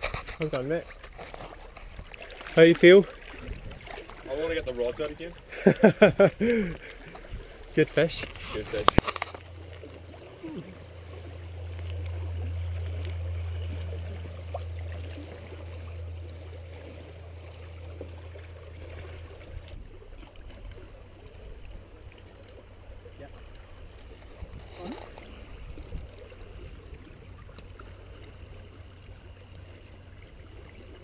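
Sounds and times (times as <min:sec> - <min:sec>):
small waves on rocks: 0:00.0 - 0:31.0
wind rumbling on microphone: 0:03.3 - 0:05.0, 0:23.5 - 0:28.9.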